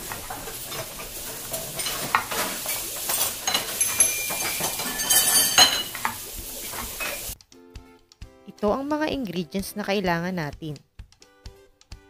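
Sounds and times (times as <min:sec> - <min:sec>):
metal utensils scraping a pan: 0:00.0 - 0:07.4
steady sizzling: 0:00.0 - 0:07.4.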